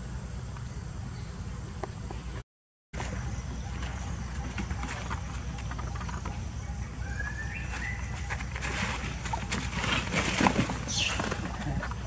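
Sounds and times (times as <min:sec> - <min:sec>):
monkeys scuffling in dry leaves: 0:07.2 - 0:12.0.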